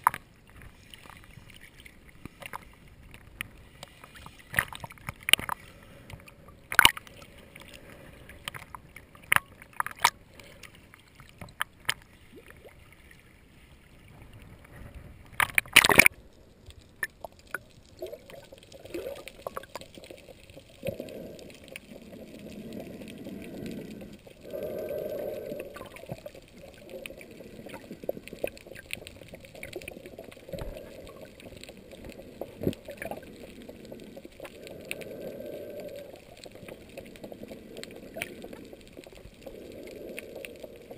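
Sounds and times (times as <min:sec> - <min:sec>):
water splashing against camera: 0:14.0 - 0:40.9.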